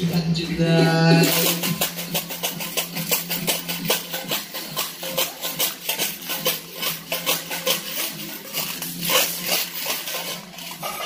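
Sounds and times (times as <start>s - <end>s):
rhythmic rattling percussion: 0.0s - 11.0s.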